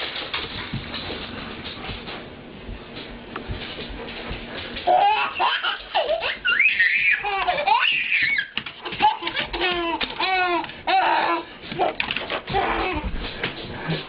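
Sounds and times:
baby laughing and squealing: 4.9 - 13.0.

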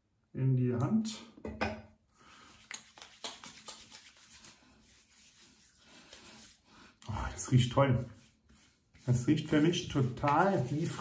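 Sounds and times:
oily hands rubbing: 2.2 - 11.0.

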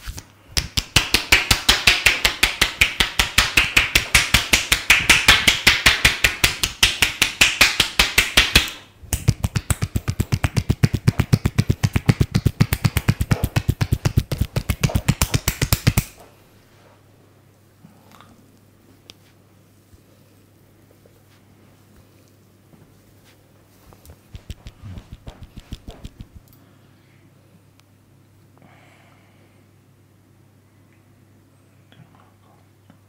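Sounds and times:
hands slapping in percussive massage: 0.5 - 16.2, 24.2 - 26.4.

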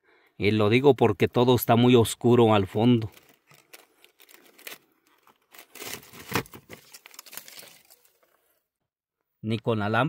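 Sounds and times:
rustling and crunching debris: 2.8 - 8.5.

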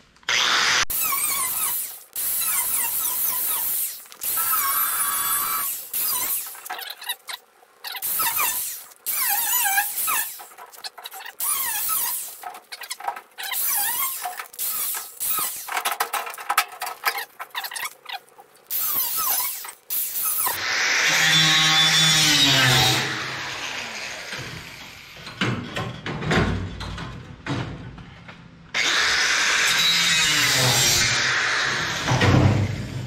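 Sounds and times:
angle grinder cutting sheet steel: 0.3 - 16.0, 18.7 - 25.2, 28.8 - 33.0.

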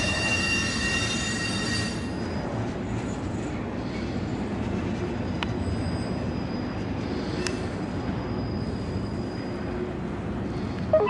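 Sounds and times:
faint high-pitched wheel squeal: 0.0 - 2.5, 5.2 - 9.9, 10.6 - 11.0
freight train rumbling past: 0.0 - 11.0.

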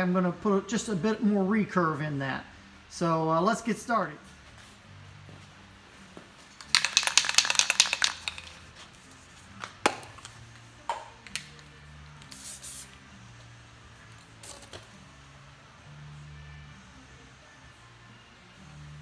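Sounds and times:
spray can rattling: 6.6 - 8.8, 12.2 - 12.9, 14.4 - 14.9
spray hiss: 12.3 - 13.0.

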